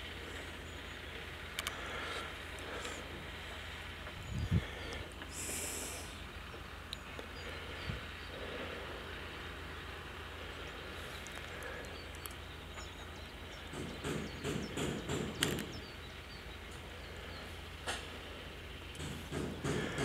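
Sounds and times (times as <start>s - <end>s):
knocks and rustles: 19.0s - 20.0s.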